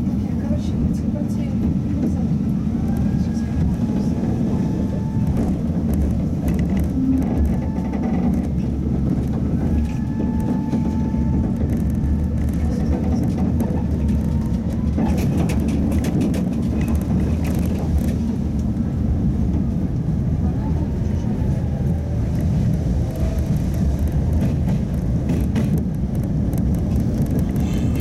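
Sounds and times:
tram wheels rumbling on rail: 0.0s - 28.0s
sharp clicks and rattles: 5.3s - 10.8s, 11.4s - 18.7s, 22.3s - 28.0s.

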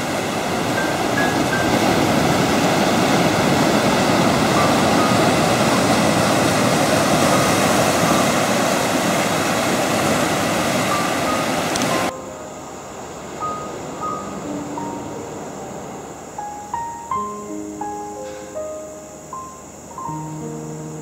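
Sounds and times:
surf washing over boulders: 0.0s - 12.2s
faint steady hum: 0.0s - 21.0s.

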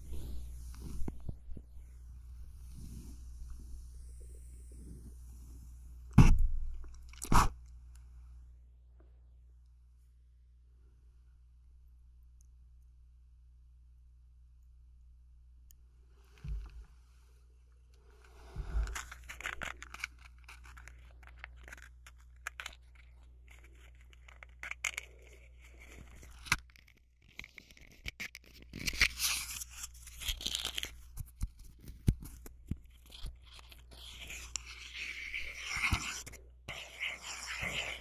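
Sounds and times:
scratchy rustling and scraping: 0.0s - 7.6s, 18.0s - 38.0s.

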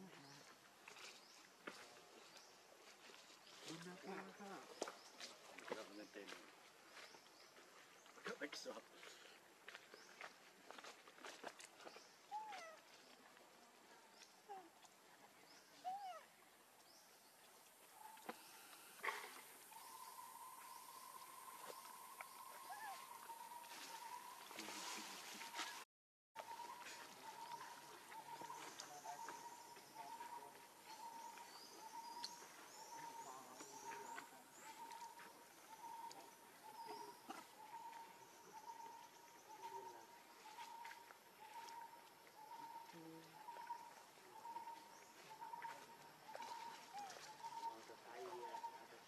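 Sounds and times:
macaque coo calls: 12.3s - 12.8s, 15.8s - 16.3s, 22.3s - 24.2s.

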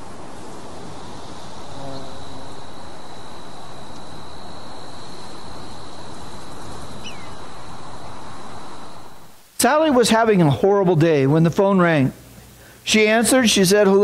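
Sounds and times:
steady hiss: 0.0s - 14.0s
high-pitched insect buzz: 0.1s - 9.3s
falling bird chirp: 5.5s - 9.0s.

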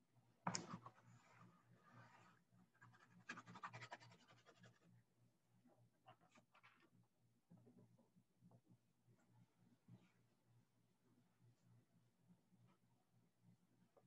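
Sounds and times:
pencil scratching on paper: 0.6s - 5.0s.

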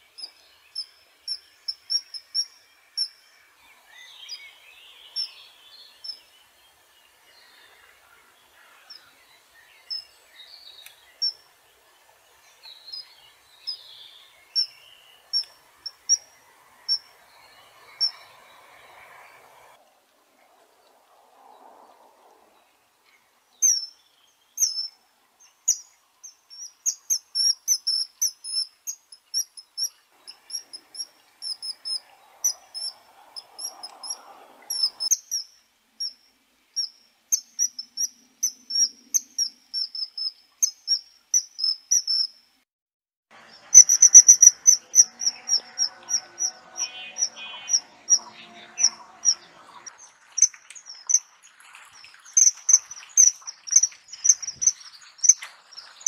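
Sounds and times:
kingfisher piping calls: 15.3s - 19.6s, 29.4s - 35.4s, 43.7s - 51.4s, 52.3s - 56.0s.

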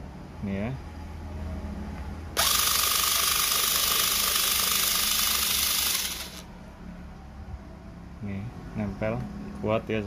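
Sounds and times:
cordless screwdriver whirring: 2.4s - 6.5s.

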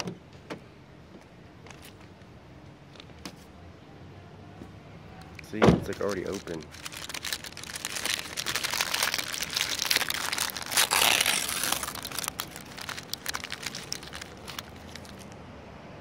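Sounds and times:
crinkly wrapper rustling: 5.2s - 15.4s.

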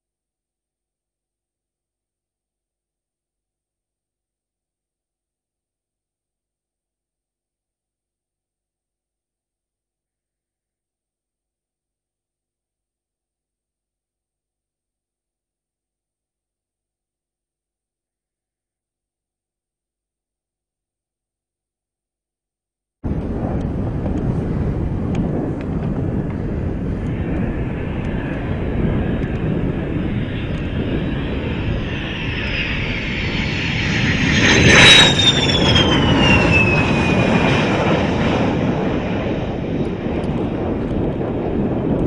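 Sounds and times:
high whine sliding down: 23.1s - 38.4s
jet engine rushing: 23.1s - 42.0s.

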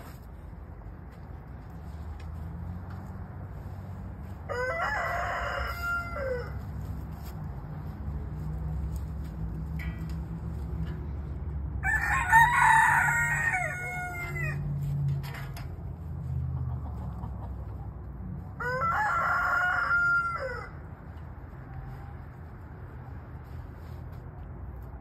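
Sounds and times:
rooster crowing: 4.4s - 6.6s, 11.8s - 14.7s, 18.6s - 20.9s.

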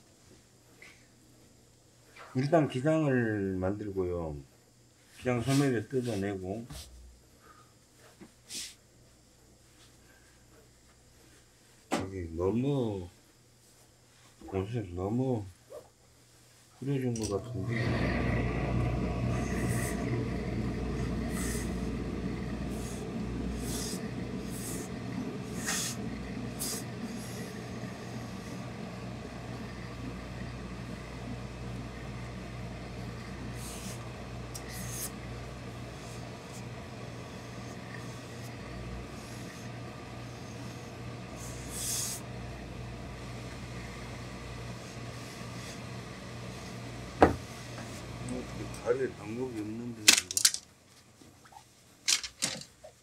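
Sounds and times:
low machine hum: 16.8s - 50.7s
steam iron hissing: 17.2s - 49.1s.

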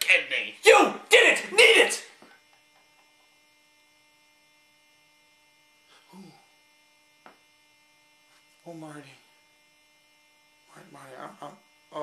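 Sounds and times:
faint electrical hum: 0.0s - 12.0s
faint vocal sound: 5.9s - 6.5s.

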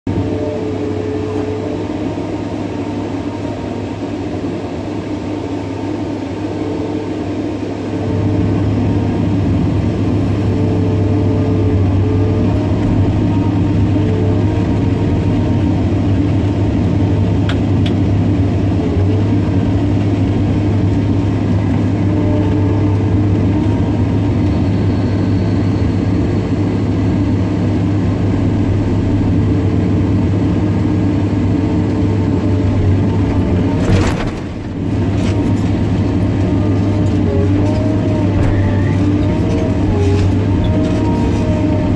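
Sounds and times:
excavator diesel engine running: 0.1s - 41.9s
hydraulics working: 32.5s - 41.9s.

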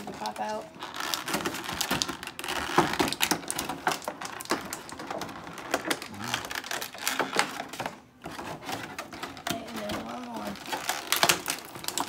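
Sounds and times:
plastic packaging trays crackling: 0.0s - 12.0s.

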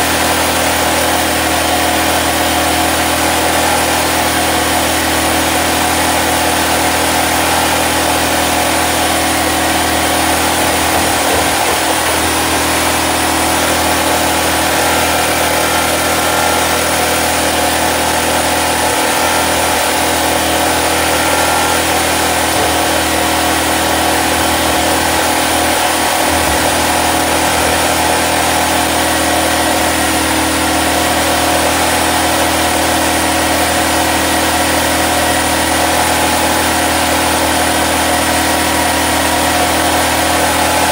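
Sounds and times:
portable generator engine running: 0.0s - 40.9s.

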